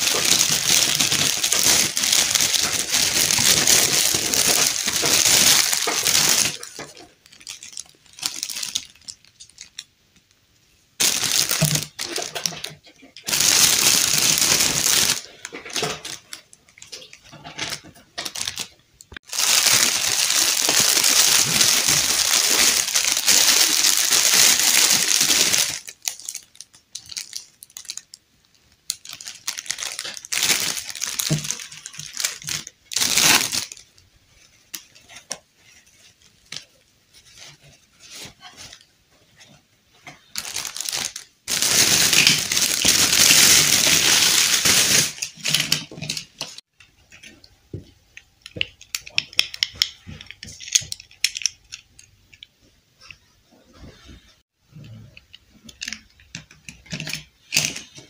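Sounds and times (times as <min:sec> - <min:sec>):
plastic bag crinkling: 0:00.0 - 0:09.9, 0:11.0 - 0:38.9, 0:40.0 - 0:47.3.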